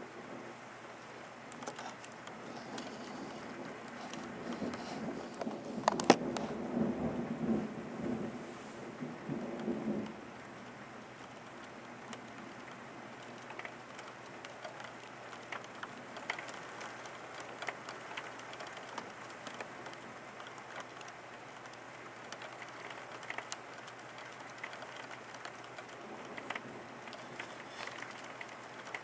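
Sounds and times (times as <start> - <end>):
raindrops ticking close by: 0.0 - 29.0
steady rain hiss: 0.0 - 29.0.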